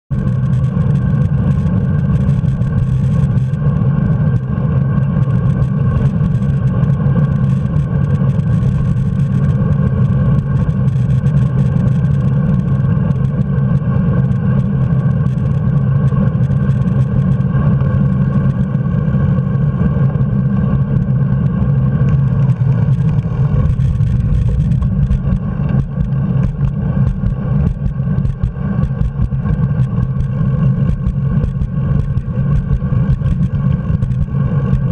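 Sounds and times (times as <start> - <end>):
wind and road rumble: 0.1 - 34.9.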